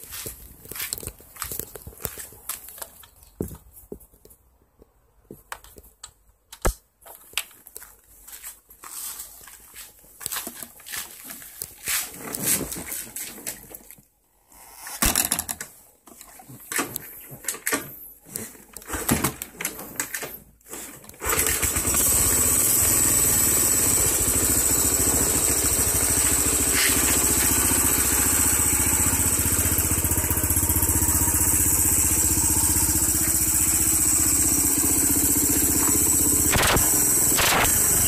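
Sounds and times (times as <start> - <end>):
motorcycle engine starting: 21.2 - 38.0.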